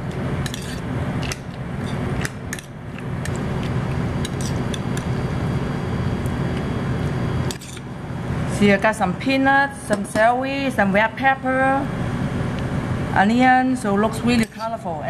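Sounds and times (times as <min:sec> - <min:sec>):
metal spoon scraping bowl and tin: 0:00.4 - 0:00.9, 0:04.2 - 0:04.8, 0:07.5 - 0:07.8, 0:14.3 - 0:14.8.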